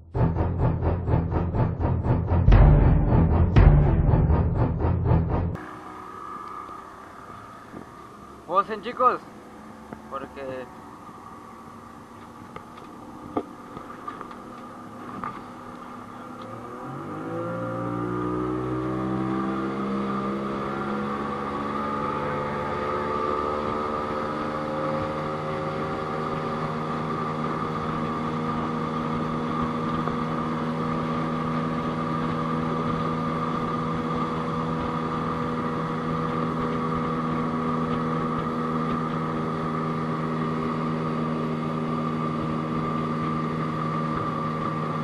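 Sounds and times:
outboard motor running: 20.9s - 45.0s.

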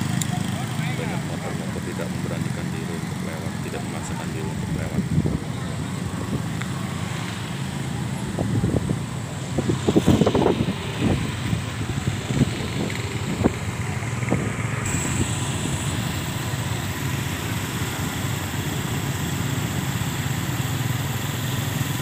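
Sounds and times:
scooter engines running: 0.0s - 22.0s
wind buffeting microphone: 1.3s - 16.3s.

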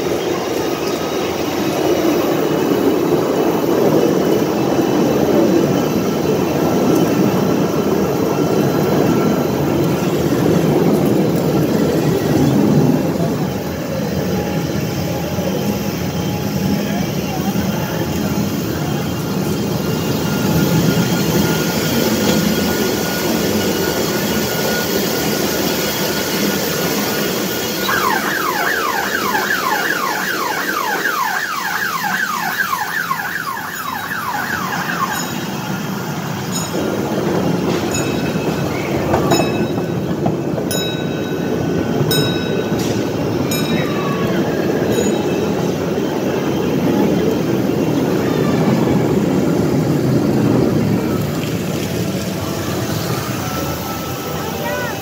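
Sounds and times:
amusement ride train running: 0.0s - 55.0s
indoor amusement park noise: 0.0s - 55.0s.

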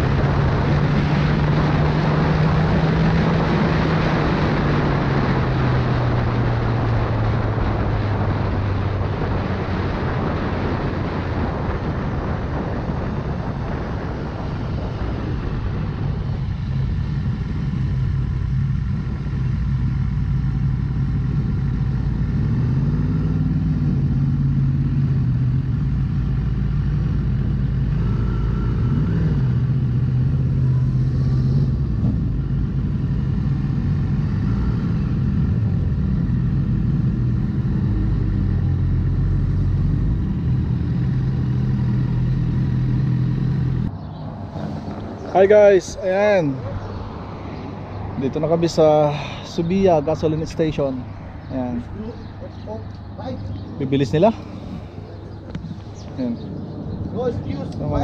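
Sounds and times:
wind rush: 0.0s - 19.3s, 27.4s - 58.0s
motorcycle engine running: 12.4s - 47.3s.

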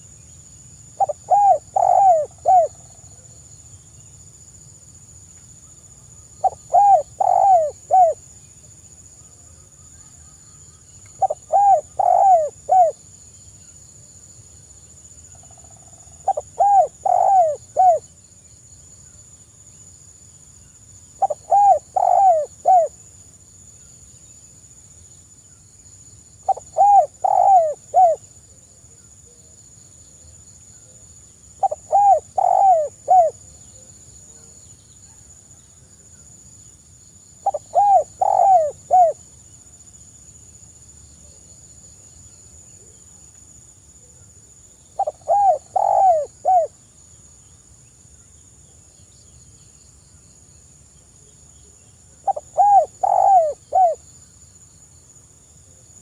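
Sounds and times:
dove cooing: 1.0s - 2.8s, 6.4s - 8.2s, 11.2s - 13.0s, 16.2s - 18.0s, 21.2s - 23.0s, 26.5s - 28.2s, 31.6s - 33.4s, 37.4s - 39.2s, 45.0s - 46.7s, 52.2s - 54.0s.

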